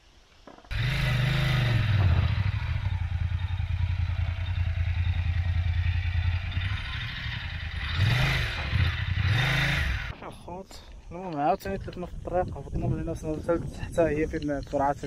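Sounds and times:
motorcycle engine at low revs: 0.4s - 10.2s.

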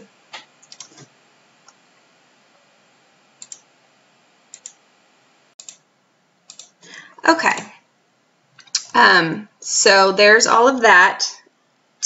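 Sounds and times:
computer mouse clicking: 0.4s - 1.1s, 3.4s - 3.6s, 4.5s - 4.8s, 5.6s - 5.8s, 6.5s - 6.8s.

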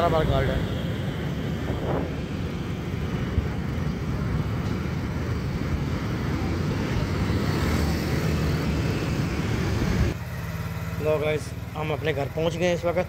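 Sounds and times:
wind rumble on microphone: 0.0s - 7.6s, 9.2s - 10.2s
motorcycle engine: 0.0s - 13.0s
road noise: 0.0s - 13.0s.

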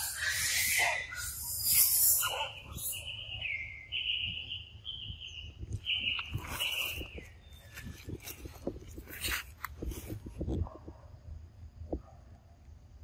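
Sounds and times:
high thin whistled call: 0.0s - 7.8s.

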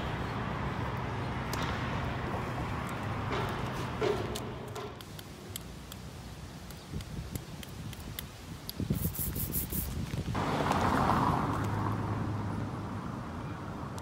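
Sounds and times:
car passing: 10.4s - 14.0s.

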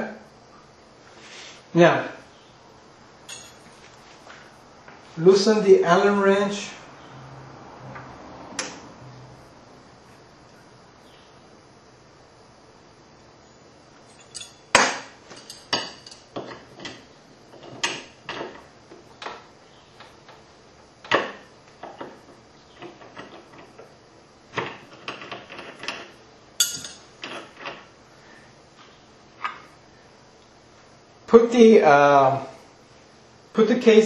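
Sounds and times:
metal tools clicking and knocking: 3.3s - 3.6s, 14.1s - 14.6s, 15.3s - 17.0s, 26.6s - 27.4s.

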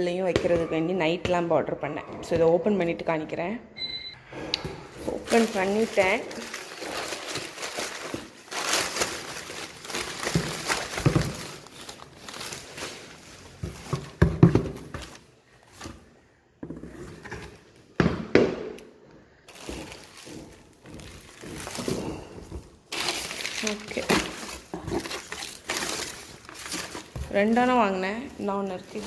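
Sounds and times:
newspaper rustling and crinkling: 5.0s - 16.1s, 19.4s - 29.0s.

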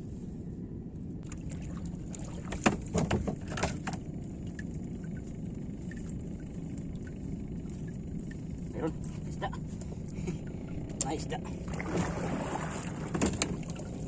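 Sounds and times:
steady low rumble: 0.0s - 14.0s
wet splashes and knocks: 1.2s - 4.0s, 11.7s - 14.0s.

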